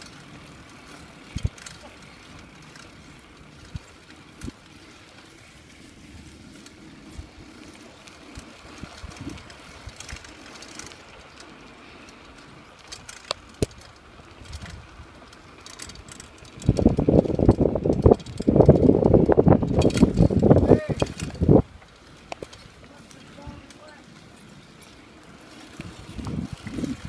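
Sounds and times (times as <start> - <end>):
bicycle tyres rumbling: 0.0 - 27.0
sharp clicks and knocks: 12.8 - 22.7
wind on microphone: 16.4 - 21.8, 25.8 - 27.0.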